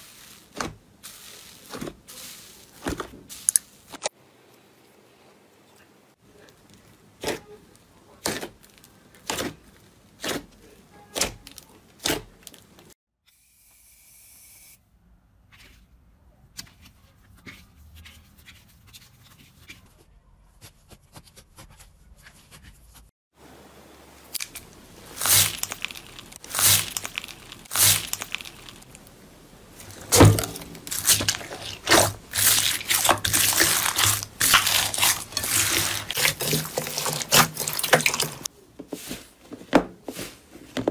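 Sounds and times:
slime squishing and popping: 0:24.3 - 0:29.0, 0:29.9 - 0:38.5.

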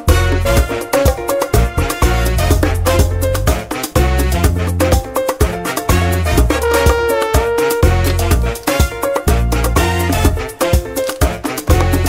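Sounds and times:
upbeat music with heavy bass: 0:01.6 - 0:11.0.

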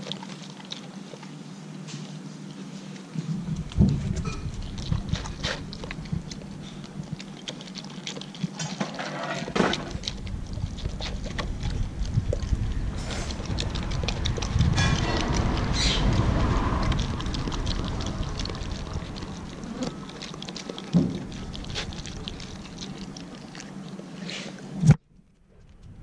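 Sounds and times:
dog licking and chewing: 0:00.0 - 0:26.0.

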